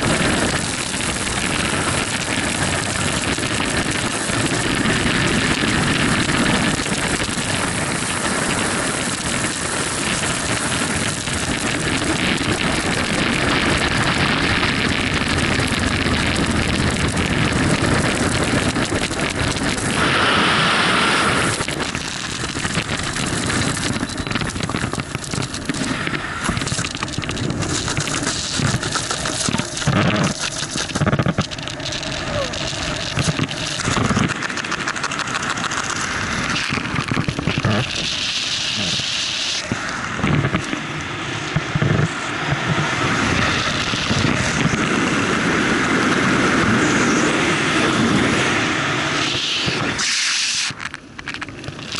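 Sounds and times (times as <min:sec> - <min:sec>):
wind rushing over microphone: 0:00.0 - 0:51.9.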